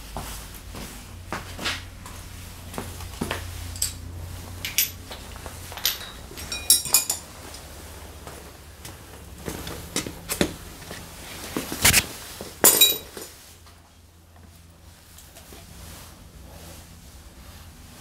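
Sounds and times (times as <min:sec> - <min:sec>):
metallic clinks of hand tools: 0:05.7 - 0:07.2.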